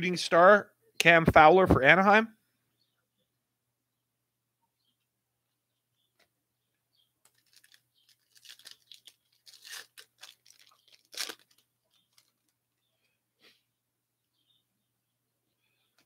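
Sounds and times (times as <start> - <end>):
plastic wrapper tearing and crinkling: 7.2 - 12.6.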